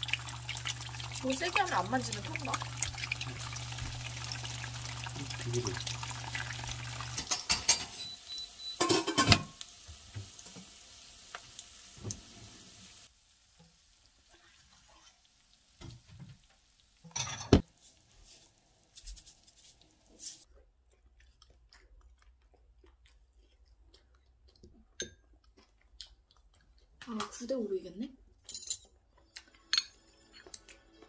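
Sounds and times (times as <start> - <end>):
eggs sizzling in a frying pan: 0.0 - 20.5
clinks of pan and ceramic bowl: 7.2 - 8.1, 8.8 - 9.5, 29.7 - 30.0.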